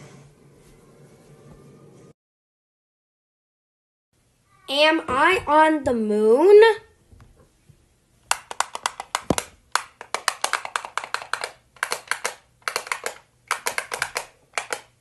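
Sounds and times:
rapid sharp clicking: 8.3 - 15.0.

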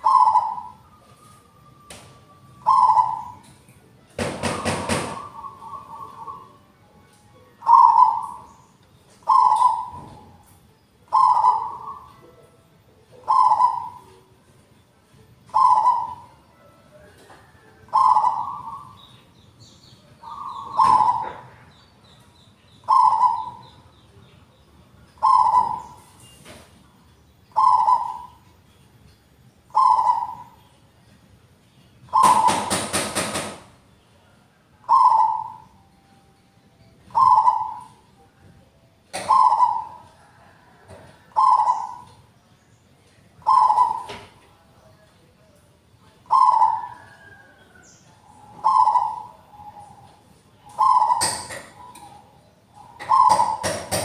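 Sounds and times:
dove cooing: 0.0 - 1.2, 1.8 - 3.5, 4.2 - 6.7, 7.6 - 8.6, 9.2 - 14.4, 15.4 - 19.0, 20.2 - 21.7, 22.8 - 23.8, 25.2 - 26.2, 27.5 - 28.4, 29.7 - 30.6, 32.1 - 33.6, 34.8 - 35.8, 37.0 - 38.4, 39.1 - 42.3, 43.4 - 44.5, 46.2 - 54.0.

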